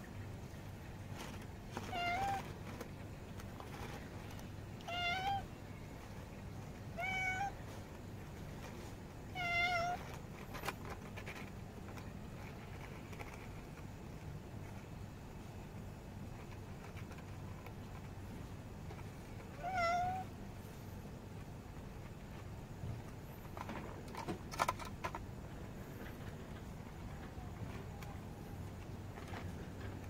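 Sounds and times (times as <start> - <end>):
cat meowing: 1.8 - 2.5, 4.8 - 5.5, 7.0 - 7.6, 9.3 - 10.1, 19.5 - 20.3.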